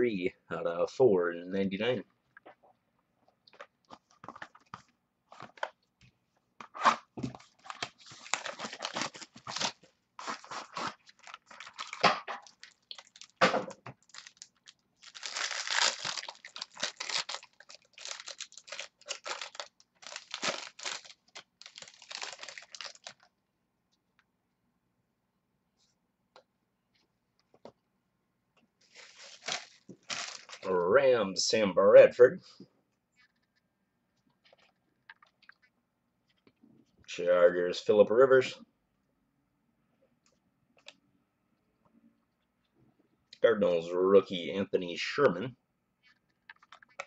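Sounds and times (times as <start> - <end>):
packaging tearing and crinkling: 6.8 - 23.3, 28.9 - 30.7.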